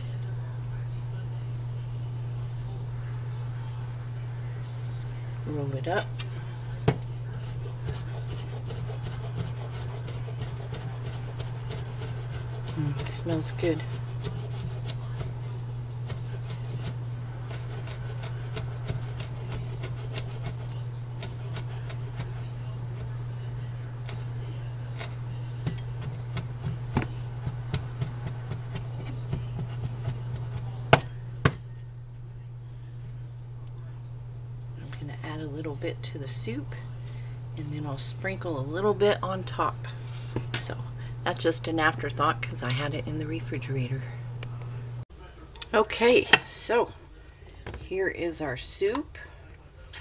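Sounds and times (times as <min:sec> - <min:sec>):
steady low hum: 0:00.0 - 0:50.0
knife chopping on cutting board: 0:06.9 - 0:13.2, 0:16.1 - 0:23.1.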